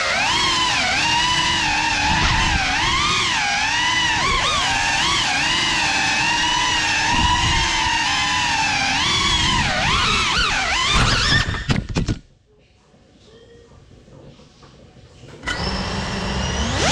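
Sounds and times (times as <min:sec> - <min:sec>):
drone motors whining: 0:00.0 - 0:11.7, 0:15.4 - 0:16.9.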